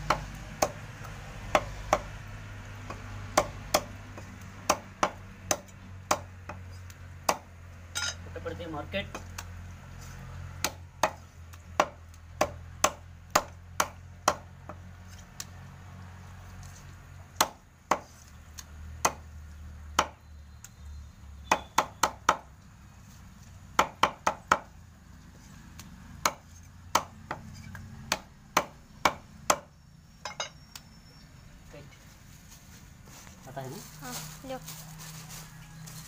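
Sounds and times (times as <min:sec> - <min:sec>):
cleaver chopping on wooden block: 0:00.0 - 0:02.2, 0:02.8 - 0:06.6, 0:07.2 - 0:07.5, 0:10.6 - 0:14.8, 0:17.4 - 0:18.1, 0:19.0 - 0:19.2, 0:20.0 - 0:20.2, 0:21.4 - 0:22.5, 0:23.8 - 0:24.7, 0:26.2 - 0:29.7.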